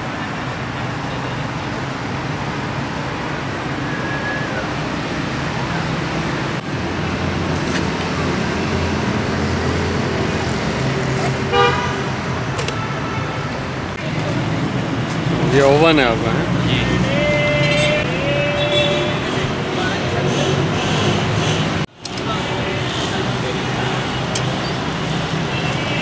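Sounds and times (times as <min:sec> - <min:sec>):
road traffic: 0:00.0 - 0:26.0
vehicle horn toot: 0:11.5 - 0:12.1, 0:17.2 - 0:19.4, 0:25.5 - 0:26.0.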